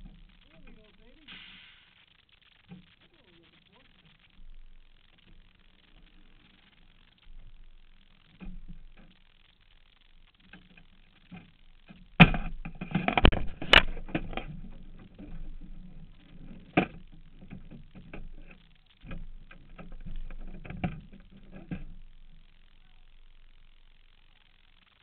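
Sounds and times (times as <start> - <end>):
rustling: 0.0 - 25.0
knocks and thumps: 10.4 - 22.3.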